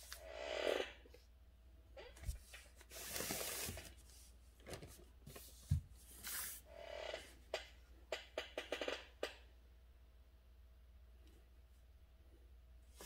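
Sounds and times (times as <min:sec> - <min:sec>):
brush swishing on paper: 0:06.0 - 0:06.6.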